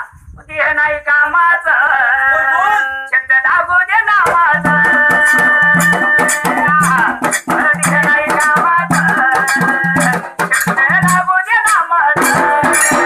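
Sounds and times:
dhol drum beating: 0:04.2 - 0:13.0
jingling metal percussion: 0:04.2 - 0:13.0
high held melodic line: 0:12.2 - 0:13.0.

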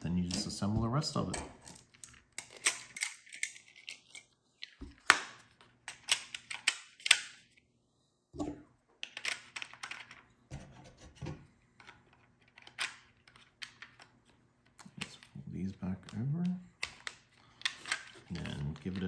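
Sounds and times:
plastic parts clicking and clattering: 0:00.2 - 0:07.5, 0:09.0 - 0:15.3, 0:16.0 - 0:19.0.

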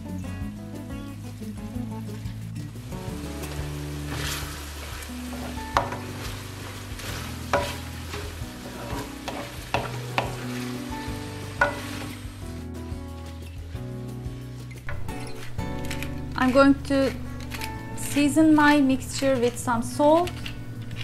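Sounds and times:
meat sizzling in a pan: 0:00.8 - 0:12.7
spoon knocking on metal pan: 0:05.7 - 0:06.2, 0:07.5 - 0:10.6, 0:11.6 - 0:12.1.

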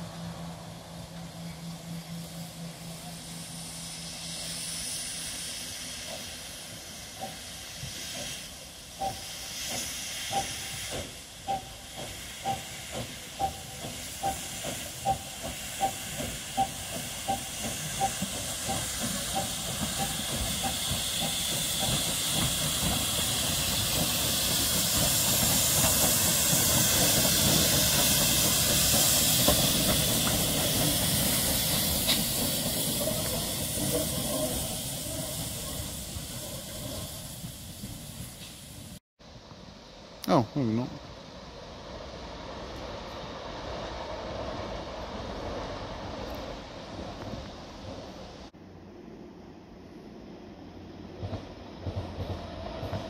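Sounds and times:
steam locomotive exhaust beats: 0:00.0 - 0:40.3
steam hissing: 0:00.0 - 0:48.6.

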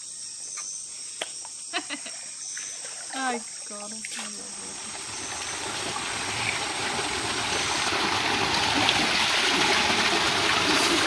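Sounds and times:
water rushing and splashing: 0:03.0 - 0:11.0.

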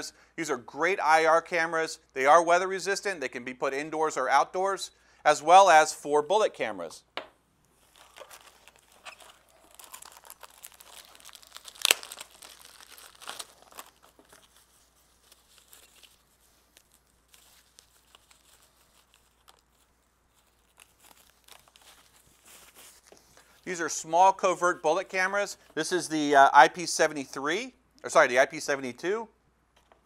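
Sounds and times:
plastic wrapping crinkling and tearing: 0:07.7 - 0:23.8.

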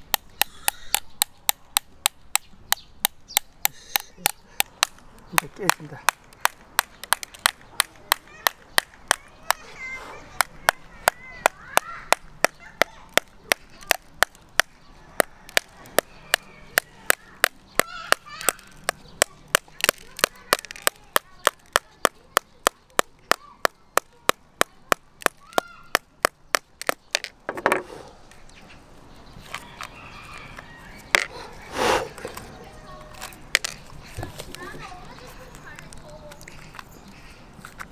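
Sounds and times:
hammer tapping eggshell: 0:00.0 - 0:09.2.

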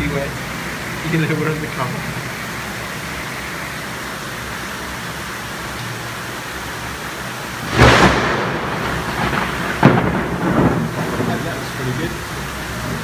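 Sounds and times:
heavy rain hissing: 0:00.0 - 0:13.0
loud thunderclap rumbling: 0:07.6 - 0:13.0.

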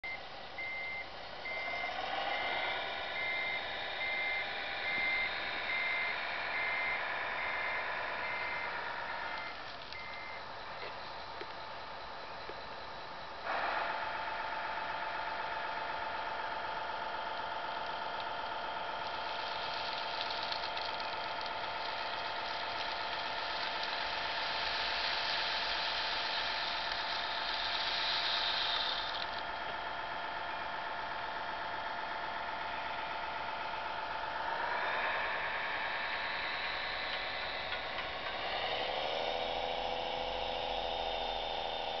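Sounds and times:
model truck motor hum: 0:00.0 - 0:42.0
gravel sliding hiss: 0:19.0 - 0:29.4.

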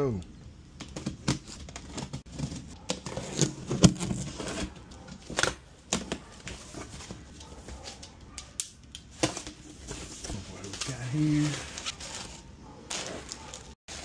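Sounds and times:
cardboard tearing: 0:00.9 - 0:07.0
knife cutting cardboard box: 0:01.2 - 0:07.0.

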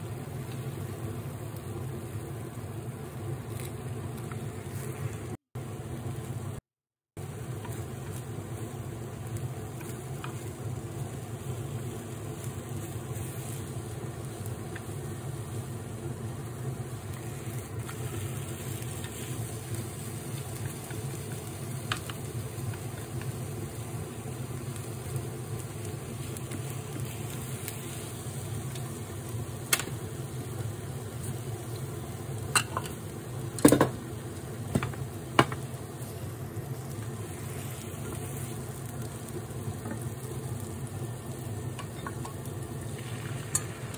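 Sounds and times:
egg frying: 0:00.0 - 0:43.9
induction hob humming: 0:07.2 - 0:43.9
chopsticks tapping a pan: 0:20.6 - 0:23.4, 0:32.5 - 0:33.0, 0:41.7 - 0:42.4.

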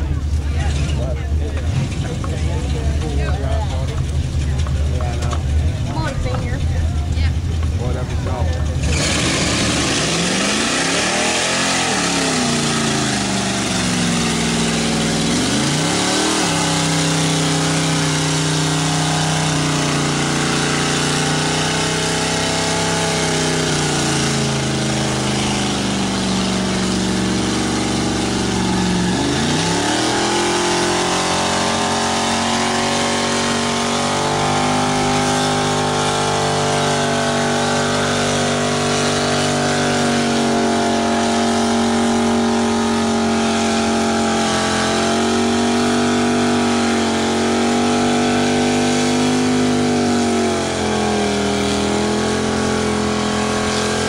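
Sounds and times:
truck churning through mud: 0:00.0 - 0:54.0
truck engine revving hard: 0:00.0 - 0:54.0.

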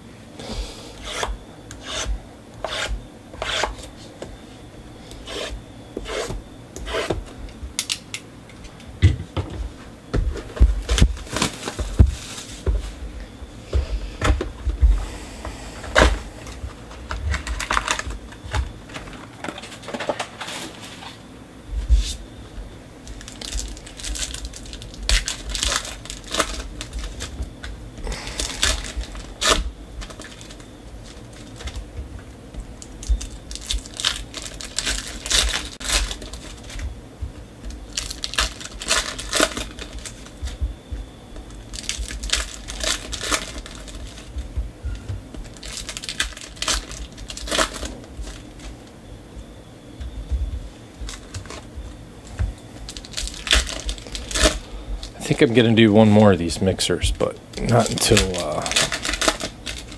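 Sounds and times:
foil pack crinkling open: 0:10.8 - 0:12.7, 0:15.9 - 0:21.2, 0:23.0 - 0:31.9, 0:32.7 - 0:37.0, 0:37.6 - 0:49.0, 0:51.0 - 0:56.6, 0:57.4 - 0:59.9.

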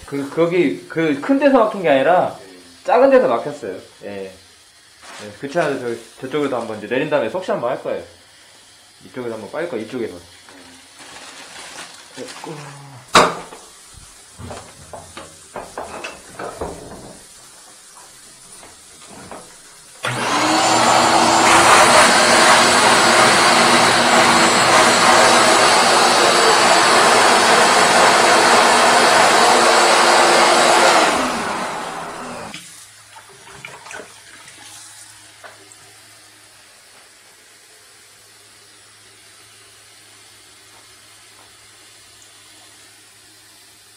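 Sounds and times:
vacuum motor whining: 0:20.0 - 0:32.6.

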